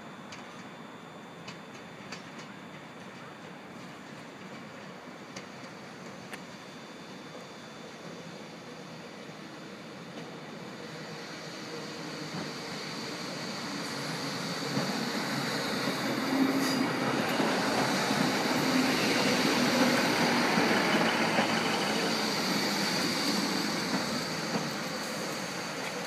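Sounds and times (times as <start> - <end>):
train rail rumble: 10.1 - 26.0.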